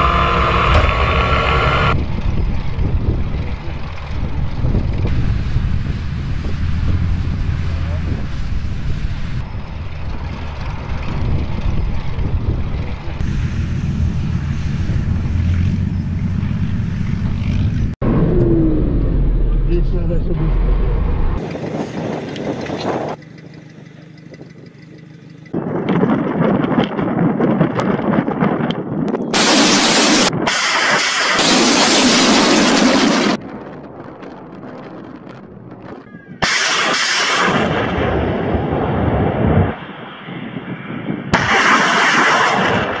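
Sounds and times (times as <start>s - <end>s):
heavy vehicle engines rumbling: 0.0s - 26.2s
rocket launch rumble: 4.4s - 9.7s, 17.8s - 22.2s, 29.3s - 43.0s
rocket firing crack and hiss: 29.4s - 33.6s, 36.4s - 40.2s, 41.3s - 43.0s.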